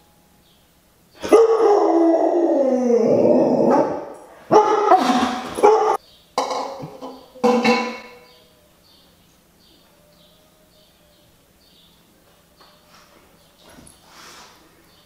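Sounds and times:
dog howling: 0:01.2 - 0:06.0.

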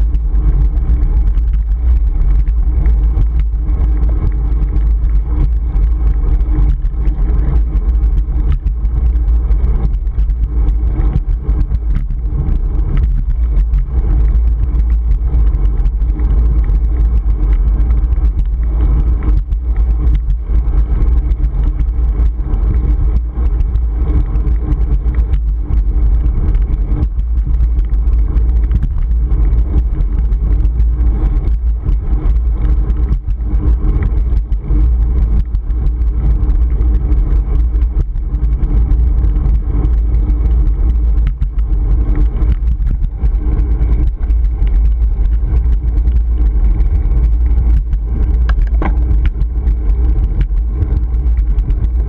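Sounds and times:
road noise: 0:00.0 - 0:20.4, 0:47.0 - 0:51.4
wind buffeting microphone: 0:00.0 - 0:52.0
small knocks from bumps: 0:48.4 - 0:49.4.

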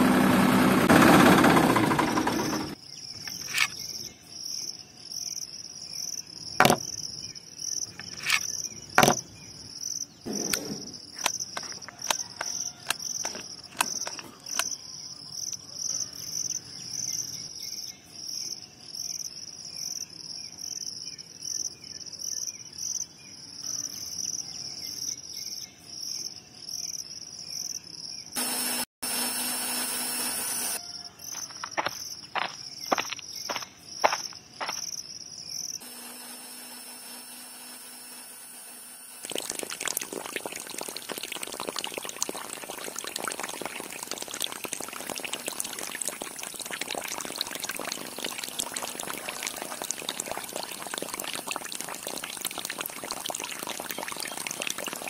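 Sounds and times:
insects chirping: 0:02.7 - 0:28.3, 0:30.8 - 0:55.0
electric toy motor humming: 0:28.4 - 0:30.8, 0:35.8 - 0:39.3.

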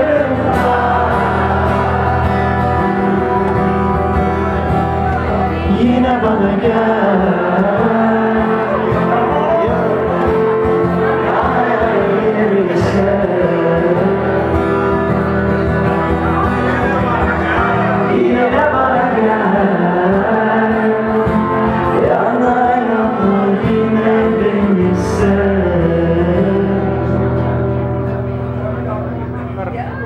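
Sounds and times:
man singing: 0:00.0 - 0:03.4, 0:05.2 - 0:15.2, 0:16.8 - 0:27.6
acoustic guitar: 0:00.0 - 0:30.0.

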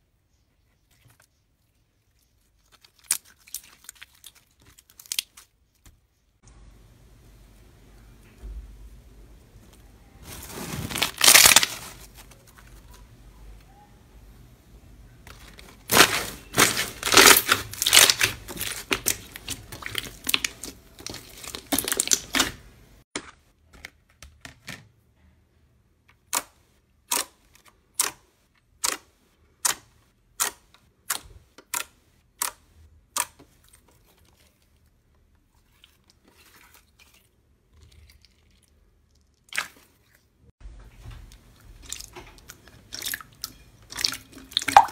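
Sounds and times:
slime crackling and squelching: 0:02.0 - 0:05.9, 0:10.2 - 0:13.2, 0:15.3 - 0:22.7, 0:33.2 - 0:40.4, 0:41.3 - 0:44.9.

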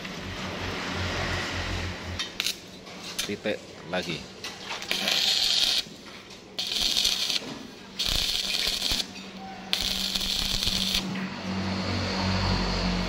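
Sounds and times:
arc welder crackle: 0:02.1 - 0:03.6, 0:04.8 - 0:11.6.

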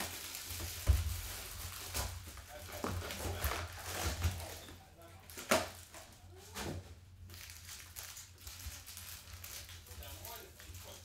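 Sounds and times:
plastic shrink-wrap crinkling and tearing: 0:00.0 - 0:04.6, 0:07.2 - 0:11.0
foil packs rustling: 0:00.0 - 0:11.0.

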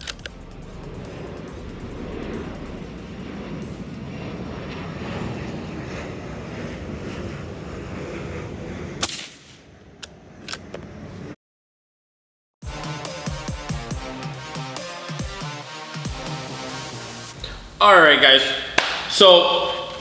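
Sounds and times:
rifle bolt clicks: 0:00.0 - 0:00.3
steady outdoor rumble: 0:00.0 - 0:11.4, 0:16.0 - 0:20.0
suppressed rifle shot: 0:09.0 - 0:09.6.

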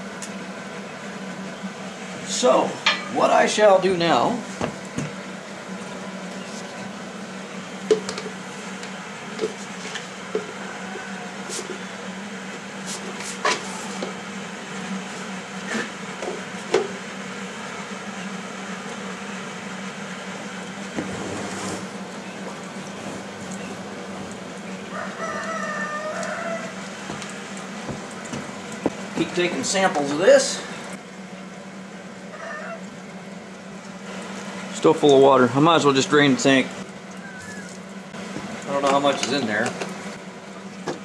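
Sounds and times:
steady low hum: 0:00.0 - 0:41.0
rooster crowing: 0:10.4 - 0:12.1, 0:24.6 - 0:28.4, 0:32.2 - 0:33.0, 0:37.1 - 0:37.8.

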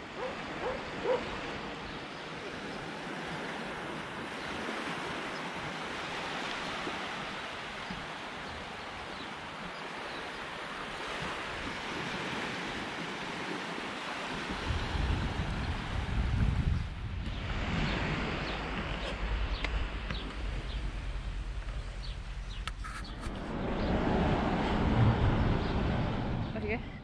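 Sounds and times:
small waves lapping on sand: 0:00.0 - 0:16.3
wind rumble on microphone: 0:00.0 - 0:27.0.

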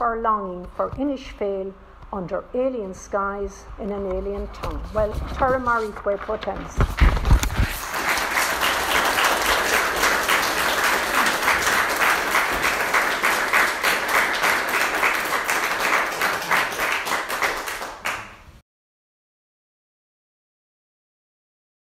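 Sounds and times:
audience applauding: 0:07.6 - 0:18.5.

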